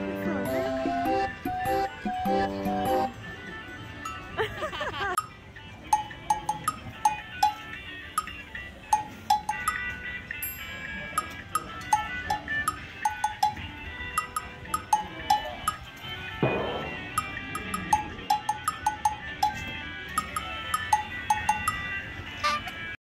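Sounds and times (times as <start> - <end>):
bell-like percussion music: 3.9 - 4.6, 5.9 - 22.0.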